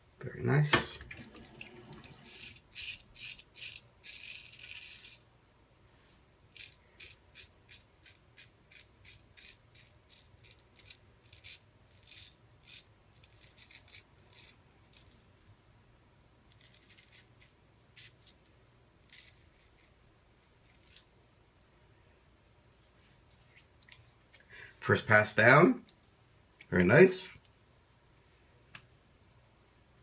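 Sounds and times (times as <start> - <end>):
razor scraping stubble: 2.2 - 5.2, 6.5 - 15.2, 16.5 - 18.4, 19.0 - 19.9.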